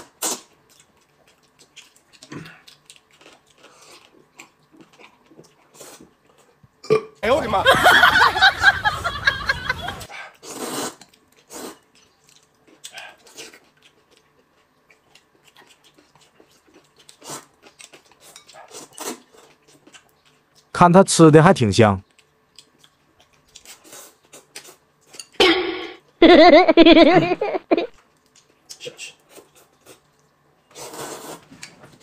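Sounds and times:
soft eating sounds: 0:00.0 - 0:07.2, 0:10.0 - 0:20.8, 0:22.0 - 0:25.4, 0:28.0 - 0:32.0
loud belch: 0:06.8 - 0:07.2.

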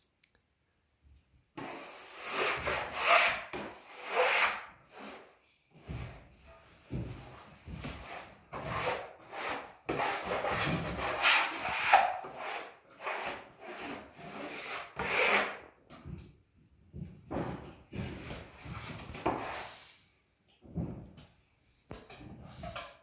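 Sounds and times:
wallpaper smoother scraping: 0:01.6 - 0:15.6, 0:18.0 - 0:20.0.

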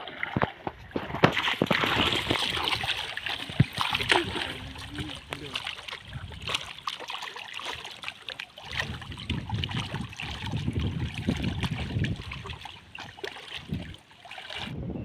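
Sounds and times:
water splashing and sloshing: 0:00.0 - 0:14.8.

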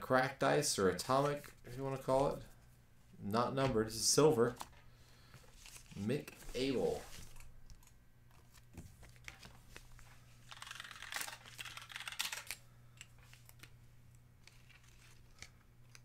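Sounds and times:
low steady hum: 0:00.0 - 0:16.0
computer keyboard typing: 0:10.5 - 0:12.6.

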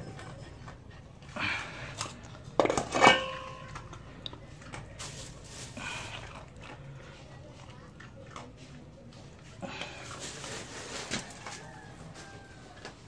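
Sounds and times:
dogs crunching dry kibble: 0:00.0 - 0:13.0
metal bowl clattering on concrete: 0:01.9 - 0:04.1.

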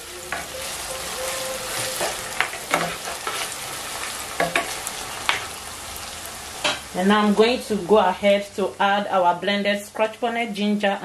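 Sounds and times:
food sizzling in hot oil: 0:00.0 - 0:08.8.

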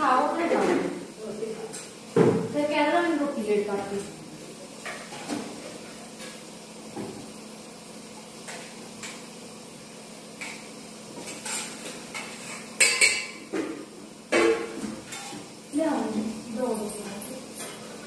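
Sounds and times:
metal bowls and plates clinking: 0:11.2 - 0:13.8, 0:16.6 - 0:17.9.

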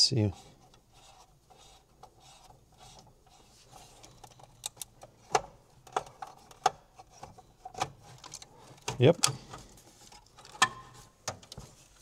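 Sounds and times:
screwdriver scraping and rubbing: 0:00.2 - 0:04.6.

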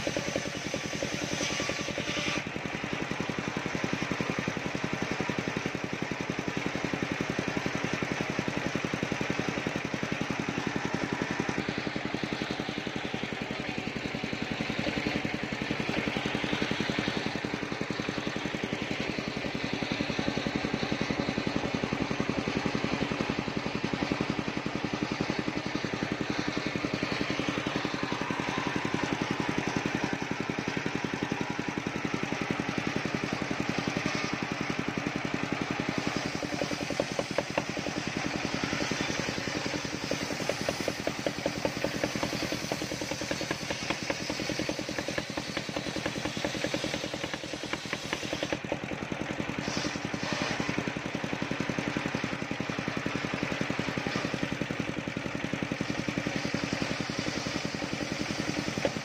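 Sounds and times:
sawmill blade ripping wood: 0:00.0 - 0:59.0.

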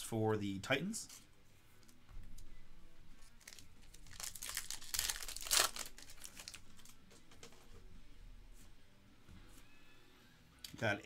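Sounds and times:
plastic cards rustling and shuffling: 0:00.9 - 0:02.5, 0:03.2 - 0:07.9.

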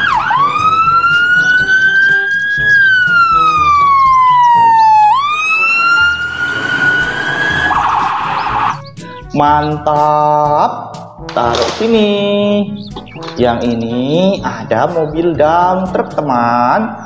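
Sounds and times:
emergency siren wailing: 0:00.0 - 0:08.9.

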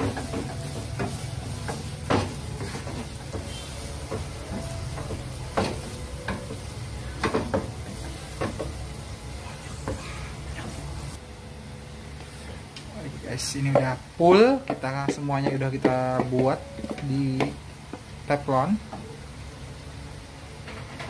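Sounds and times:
wooden spatula scraping pan: 0:00.0 - 0:08.7
noodles sizzling in frying pan: 0:00.0 - 0:11.2
steady low hum: 0:00.0 - 0:20.8.

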